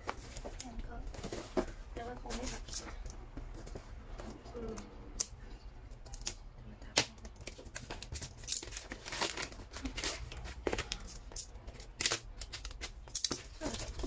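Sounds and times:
plastic wrap crinkling and tearing: 0:07.0 - 0:14.0.

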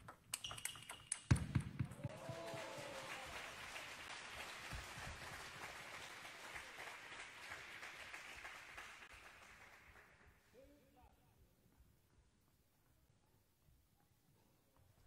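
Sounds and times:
spectators applauding: 0:02.0 - 0:10.4.

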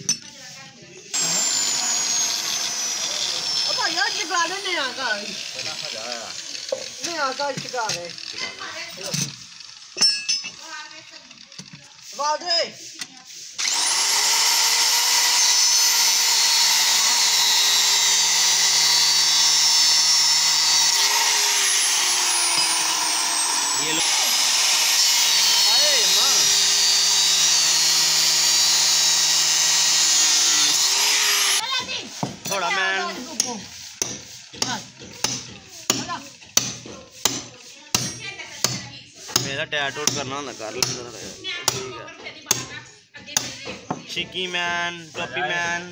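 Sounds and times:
disc cutter cutting steel: 0:01.1 - 0:37.4
hammer striking steel rebar: 0:33.4 - 0:40.2.

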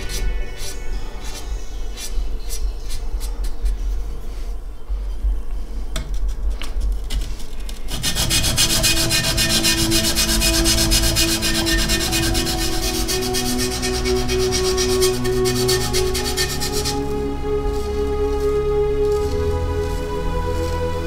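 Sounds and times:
low multi-tone drone: 0:00.0 - 0:21.0
blade scraping on whetstone: 0:07.9 - 0:21.0.

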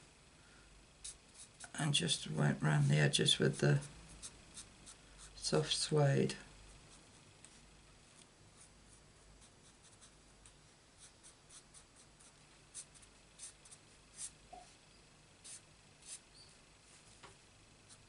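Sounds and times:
marker scratching on cardstock: 0:11.0 - 0:14.4, 0:15.4 - 0:16.2.

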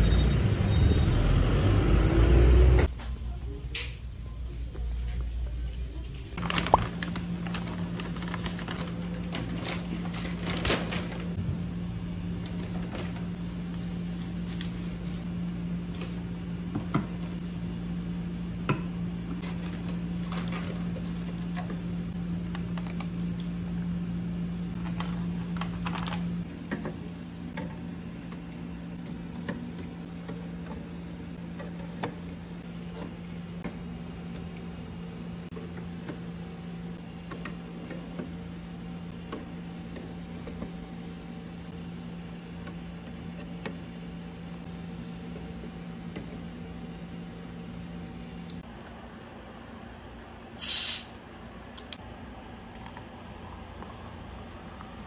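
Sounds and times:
paper bag rustling: 0:06.4 - 0:11.4, 0:12.4 - 0:15.3.

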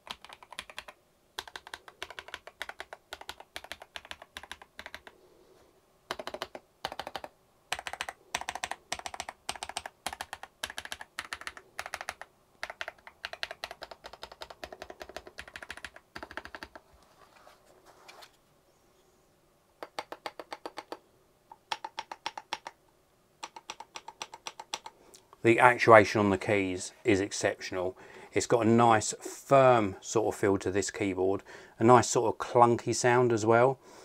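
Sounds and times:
mechanical keyboard typing: 0:00.0 - 0:05.1, 0:06.1 - 0:16.8, 0:19.8 - 0:22.8, 0:23.4 - 0:25.0.

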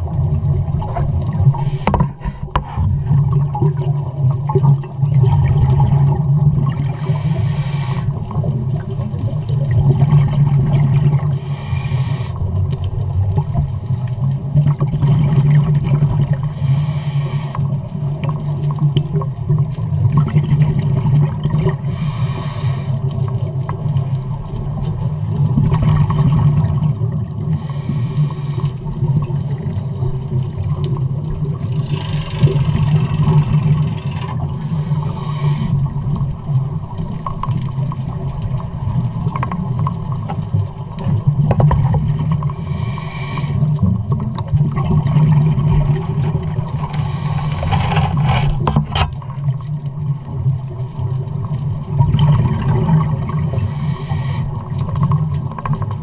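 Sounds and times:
low underwater rumble: 0:00.0 - 0:56.0
diver breathing through regulator: 0:01.5 - 0:03.3, 0:06.9 - 0:08.2, 0:11.2 - 0:12.5, 0:16.4 - 0:17.7, 0:21.7 - 0:23.2, 0:27.4 - 0:29.0, 0:34.4 - 0:36.0, 0:42.4 - 0:43.8, 0:46.8 - 0:48.8, 0:53.3 - 0:54.8.

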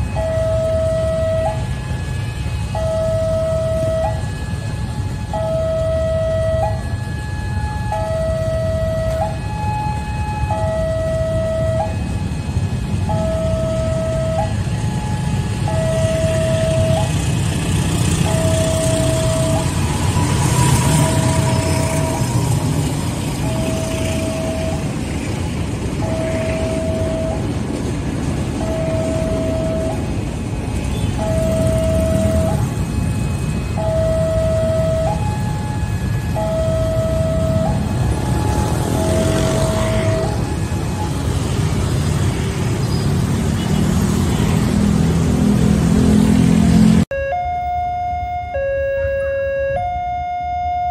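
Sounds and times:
passing train rumble: 0:00.0 - 0:49.2
level crossing two-note alarm: 0:47.1 - 0:50.9.

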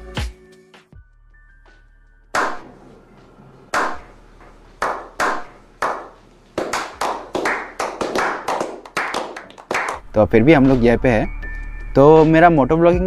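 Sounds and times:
slow single handclaps: 0:02.4 - 0:02.7, 0:03.7 - 0:04.1, 0:04.8 - 0:10.0
people clapping: 0:02.4 - 0:10.0.

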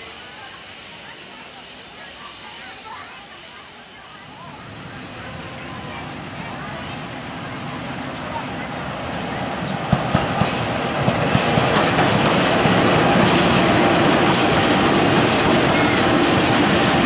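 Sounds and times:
diesel locomotives rumbling past: 0:00.0 - 0:17.0
train wheels clicking: 0:09.6 - 0:17.0.

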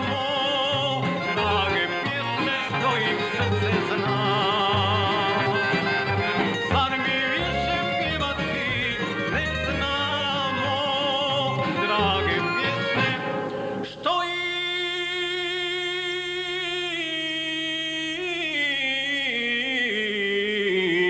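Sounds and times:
instrumental accompaniment with bass: 0:00.0 - 0:14.0
man singing folk song: 0:00.0 - 0:21.0.

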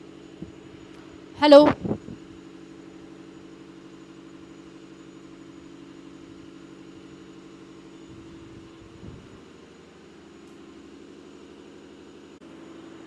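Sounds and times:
low mechanical hum: 0:00.0 - 0:13.0.

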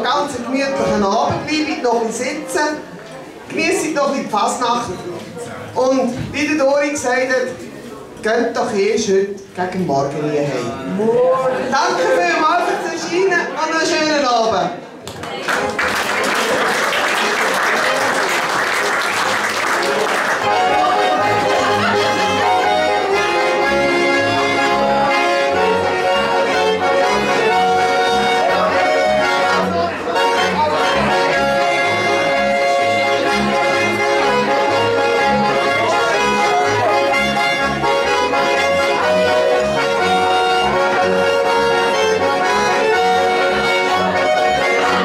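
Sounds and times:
accordion folk dance music: 0:00.0 - 0:05.2, 0:15.7 - 0:45.0.

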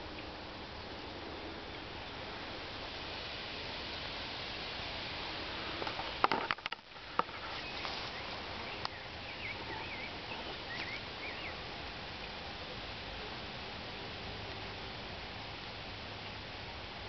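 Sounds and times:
steady hiss: 0:00.0 - 0:17.0
camera handling knocks and rustles: 0:06.2 - 0:07.3
small bird singing: 0:07.4 - 0:11.6.

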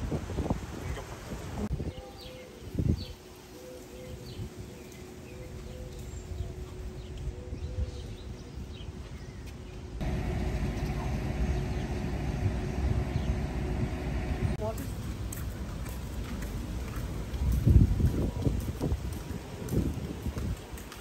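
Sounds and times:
birds chirping: 0:02.2 - 0:14.7
low rumble: 0:10.0 - 0:14.7
dense traffic rumble: 0:10.0 - 0:20.8.

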